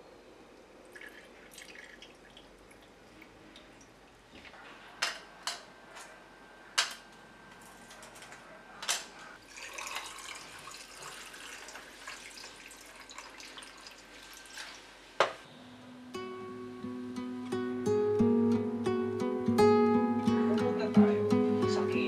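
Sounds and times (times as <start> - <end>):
water pouring over ice: 0.9 - 2.9, 9.4 - 14.9.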